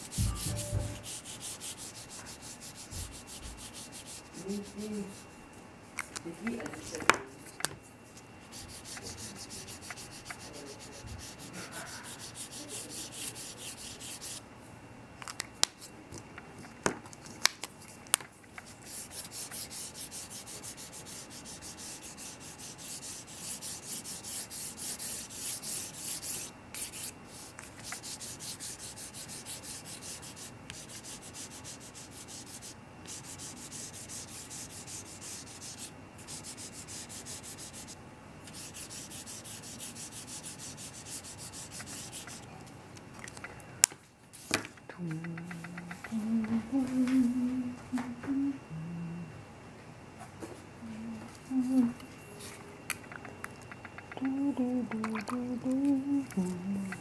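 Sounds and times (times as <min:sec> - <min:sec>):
marker scratching on paper: 0:00.0 - 0:05.2, 0:08.1 - 0:14.4, 0:18.6 - 0:42.5.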